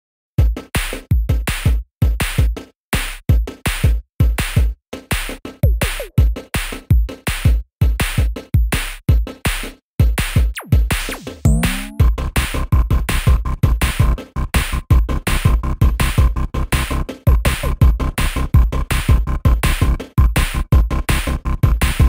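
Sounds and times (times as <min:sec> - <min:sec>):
electronic music with drum beat: 0:00.4 - 0:22.0
falling synth sweep: 0:11.5 - 0:12.1.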